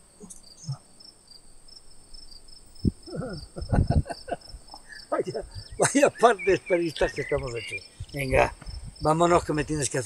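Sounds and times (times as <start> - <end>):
crickets chirping: 0.0 - 10.0
man making broken vocal sounds: 3.0 - 4.0.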